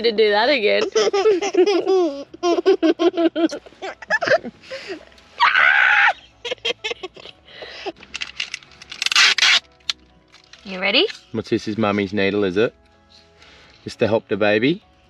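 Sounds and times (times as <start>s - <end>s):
child and woman squealing: 5.4s - 6.2s
loud scream: 5.4s - 6.2s.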